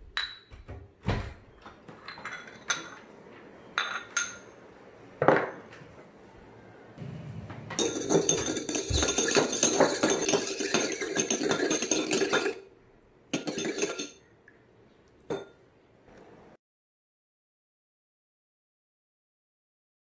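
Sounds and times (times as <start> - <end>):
metal beater clinking against bowl: 7.8 - 12.6, 13.3 - 14.2.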